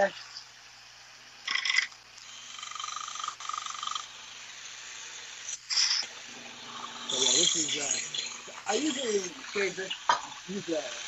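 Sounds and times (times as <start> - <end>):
belt sander humming: 6.2 - 11.0.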